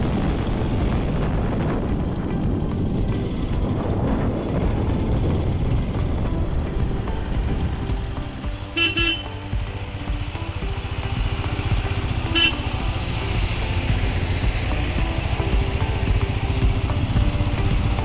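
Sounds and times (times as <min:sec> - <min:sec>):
diesel truck engine rumbling: 0:00.0 - 0:18.0
vehicle horn toots: 0:08.7 - 0:09.4, 0:12.2 - 0:12.8.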